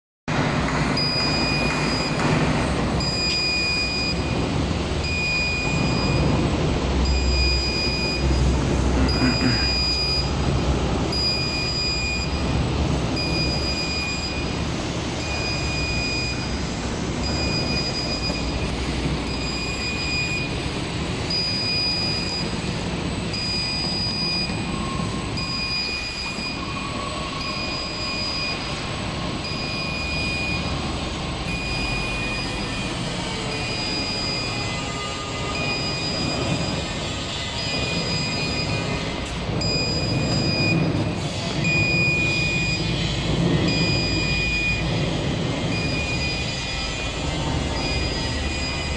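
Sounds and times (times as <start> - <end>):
grinding machine rumble: 0.3 - 48.9
short high-pitched tones: 7.1 - 10.4.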